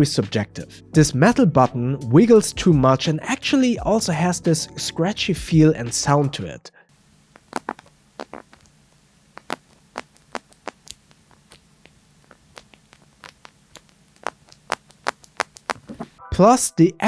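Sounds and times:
scratchy sound: 0:07.3 - 0:16.2.

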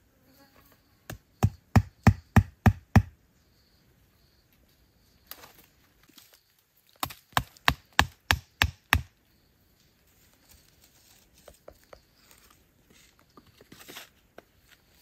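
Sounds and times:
faint rustling in leaf litter: 0:09.8 - 0:11.4.

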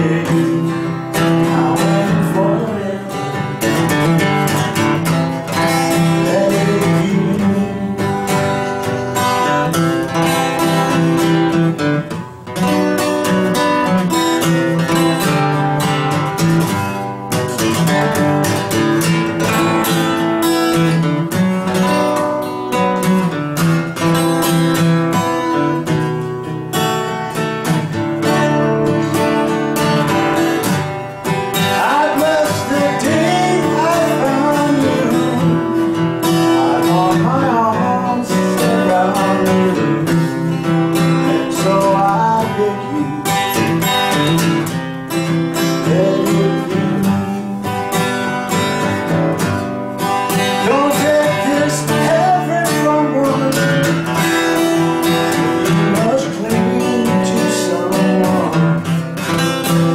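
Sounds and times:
man singing: 0:00.0 - 0:09.8, 0:27.9 - 0:48.1, 0:50.2 - 0:59.9
acoustic guitar strumming: 0:00.0 - 0:59.9.

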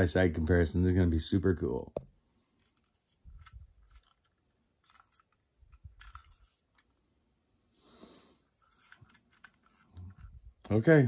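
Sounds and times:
plastic toy handling: 0:02.0 - 0:07.3, 0:08.4 - 0:11.0.

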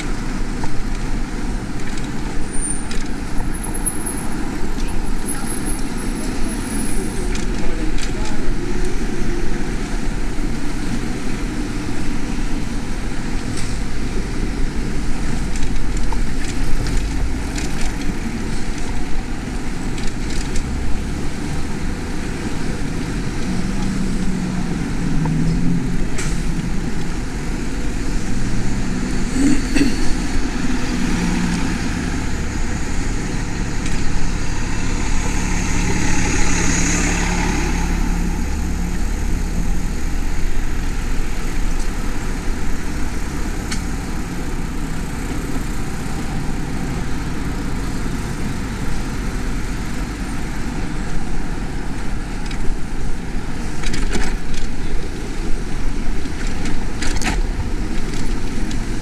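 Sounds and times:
city street traffic: 0:00.0 - 0:59.0
vehicle engine humming: 0:00.0 - 0:59.0
vehicle passing: 0:21.0 - 0:47.8.

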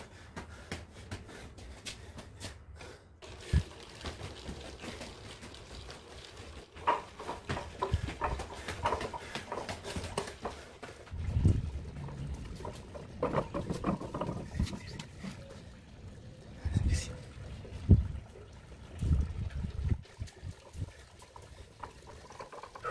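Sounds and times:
footsteps on tiled stairs: 0:00.0 - 0:15.2
knocks and scuffs: 0:06.8 - 0:11.5.

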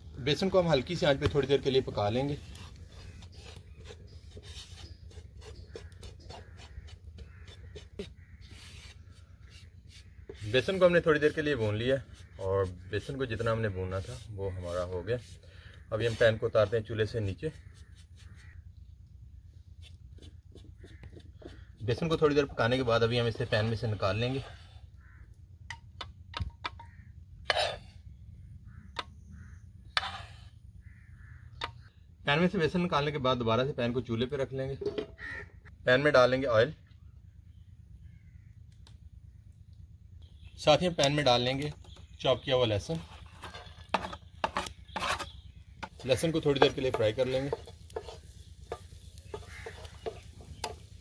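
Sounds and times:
spoon scraping flour in pan: 0:01.0 - 0:15.4, 0:29.9 - 0:30.5, 0:42.8 - 0:51.0
metal spoon scraping in pan: 0:29.9 - 0:30.5, 0:42.9 - 0:51.0.

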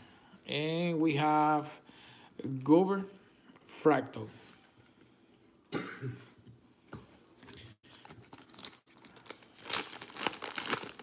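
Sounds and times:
foil wrapper rustling: 0:07.9 - 0:11.0
foil wrapper tearing: 0:08.3 - 0:11.0.

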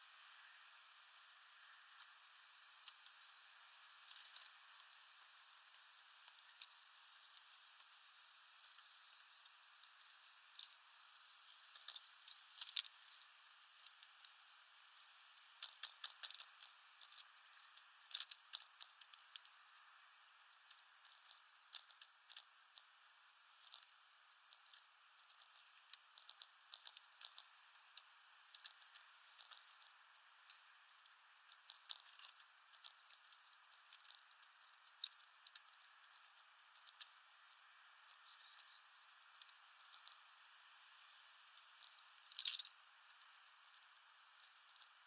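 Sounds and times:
birds cracking seeds: 0:01.5 - 0:45.0.

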